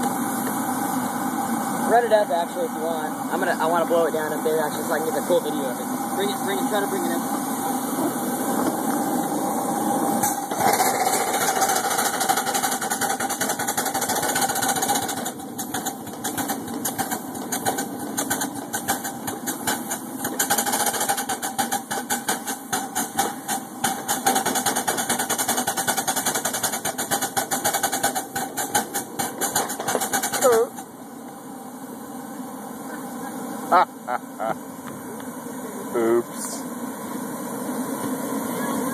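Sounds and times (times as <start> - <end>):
hiss of steam: 0.0 - 38.9
rapid ticking beat: 11.4 - 30.8.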